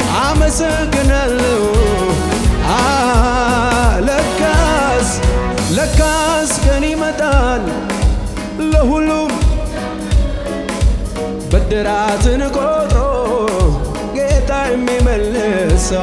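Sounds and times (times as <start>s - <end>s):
band with bass drum beat: 0.0s - 16.0s
person singing with vibrato: 0.0s - 16.0s.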